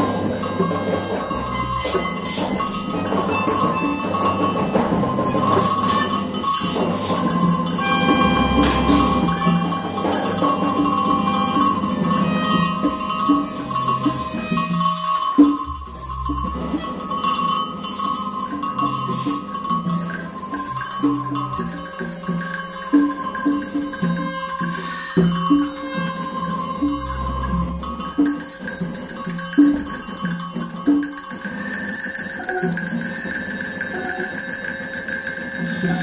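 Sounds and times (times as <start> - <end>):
short pitched notes: 0.0 - 5.9, 7.6 - 17.4, 24.4 - 28.3
low sounds: 0.0 - 17.5, 24.4 - 28.5
high held tone: 0.0 - 33.0
bell-like ringing: 0.0 - 36.0.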